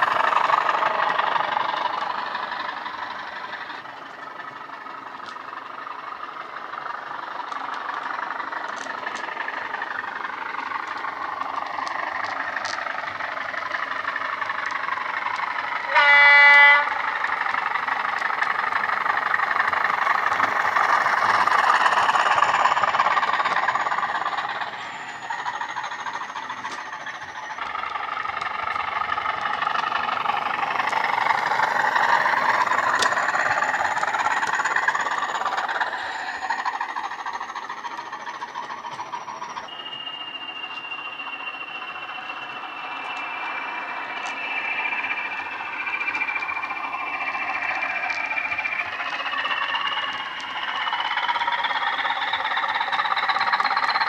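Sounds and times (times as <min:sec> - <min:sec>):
diesel engine sound through speaker: 0:00.0 - 0:54.0
high whine: 0:00.0 - 0:54.0
model train horn blast: 0:15.8 - 0:17.2.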